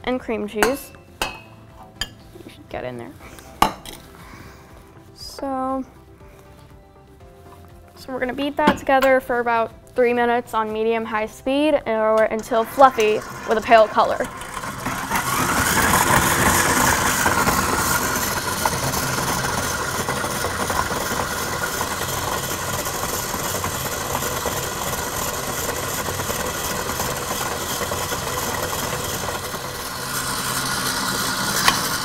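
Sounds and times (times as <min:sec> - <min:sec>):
stand mixer running: 0:12.4 - 0:32.0.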